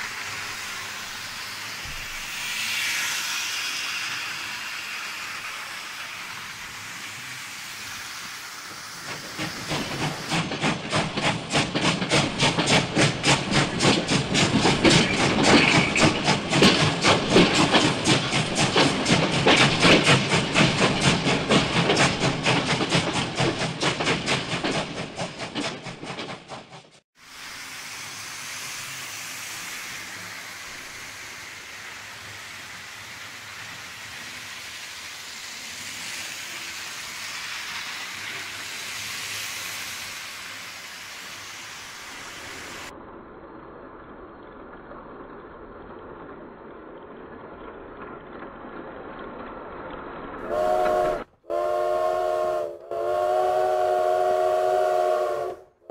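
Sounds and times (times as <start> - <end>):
steam locomotive whistle blasts: 50.4 - 55.9.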